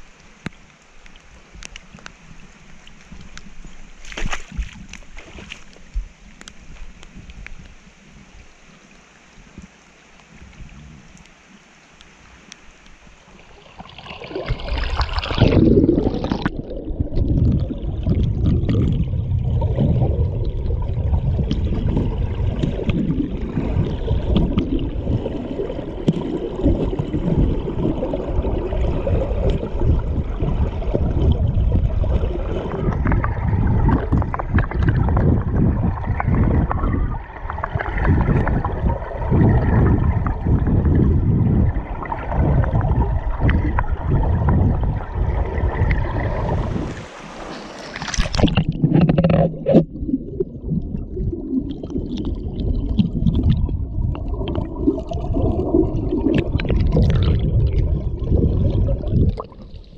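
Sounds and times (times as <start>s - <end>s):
faint water ambience: 0.0s - 59.9s
camera splashing into water: 4.0s - 5.8s, 46.4s - 49.9s
muffled underwater rumbling: 12.9s - 59.9s.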